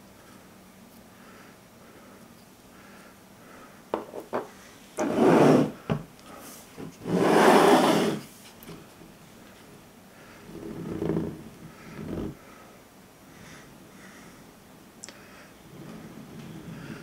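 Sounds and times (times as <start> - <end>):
statues scraping across table: 5.0 - 5.8, 6.8 - 8.3, 10.5 - 12.4.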